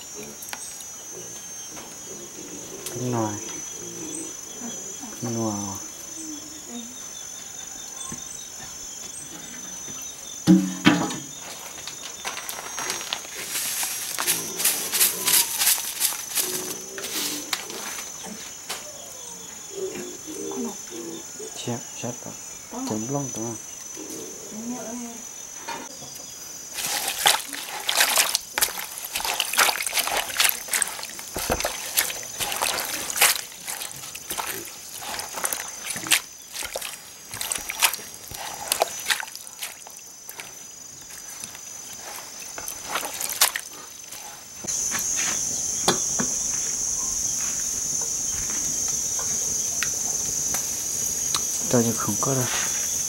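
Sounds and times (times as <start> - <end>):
high-pitched insect chorus: 0.0 - 53.0
hands splashing water in a basin: 26.7 - 43.8.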